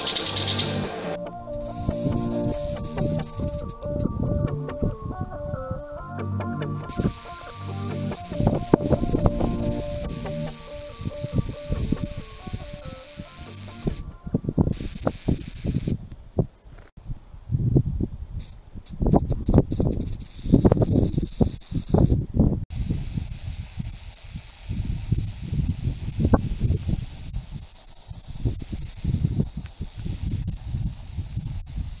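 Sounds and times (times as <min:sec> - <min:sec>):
rattlesnake tail rattling: 0:00.0 - 0:00.9, 0:01.5 - 0:04.0, 0:06.9 - 0:14.0, 0:14.7 - 0:16.0, 0:18.4 - 0:32.0.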